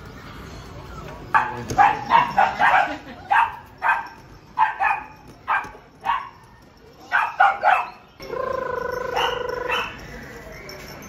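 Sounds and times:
puppies yapping: 0:01.4 - 0:06.4, 0:07.1 - 0:08.1, 0:09.0 - 0:10.1.

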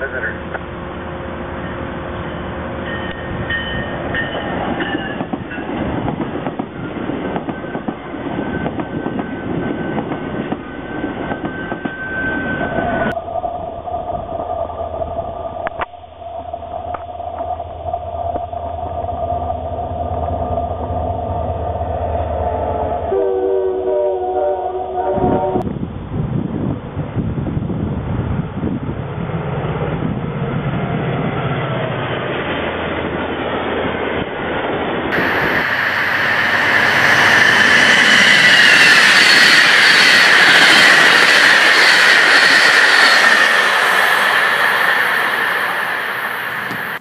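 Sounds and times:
train wheels rumbling on rails: 0:00.0 - 0:23.2, 0:25.2 - 0:47.0
train coaches whining: 0:00.0 - 0:25.7, 0:29.0 - 0:47.0
diesel locomotive passing: 0:00.0 - 0:47.0.

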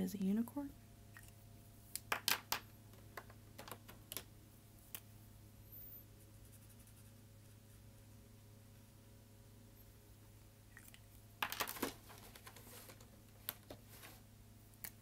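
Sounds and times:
faint steady low hum: 0:00.0 - 0:15.0.

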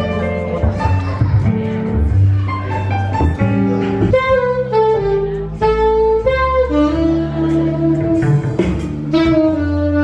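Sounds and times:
upright double bass: 0:00.0 - 0:10.0
saxophone melody: 0:03.5 - 0:10.0.

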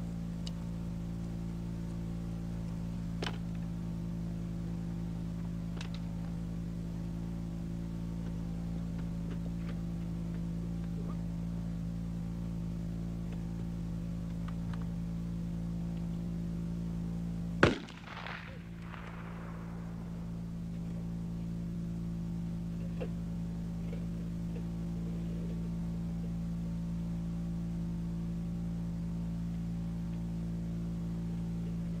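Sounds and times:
steady low hum: 0:00.0 - 0:32.0
rifle shot with echo: 0:17.6 - 0:20.5.

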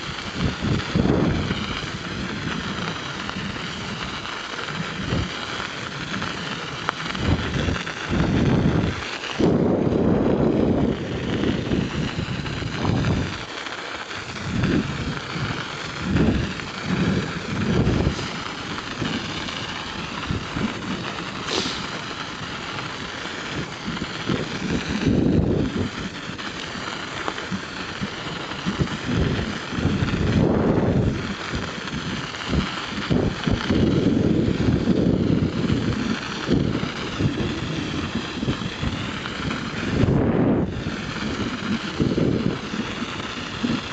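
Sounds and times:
wind buffeting the microphone: 0:00.0 - 0:13.5, 0:14.1 - 0:43.9
bicycle tyres rolling on snowy ice: 0:00.0 - 0:43.9.

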